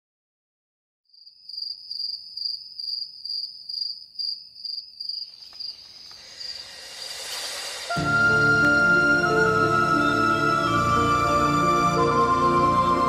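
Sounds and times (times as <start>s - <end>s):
crickets chirping: 1.1s - 7.9s
rising whoosh: 6.2s - 11.5s.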